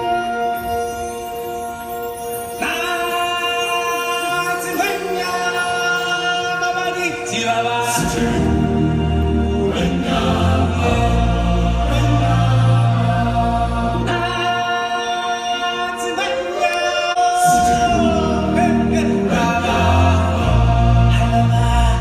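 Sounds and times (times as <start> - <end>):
choir singing held notes: 2.6 - 22.0
deep bass notes: 17.5 - 22.0.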